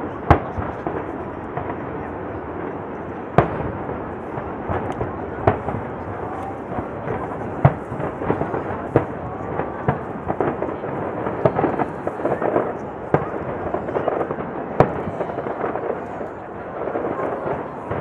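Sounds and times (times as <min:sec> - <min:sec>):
fireworks bangs and crackles: 0:00.0 - 0:18.0.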